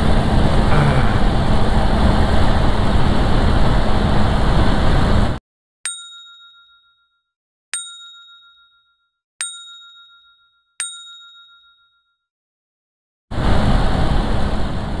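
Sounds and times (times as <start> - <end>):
loud rushing wind: 0.0 - 5.4, 13.3 - 15.0
road noise: 0.0 - 5.4, 13.3 - 15.0
bell-like ding: 5.9 - 12.3.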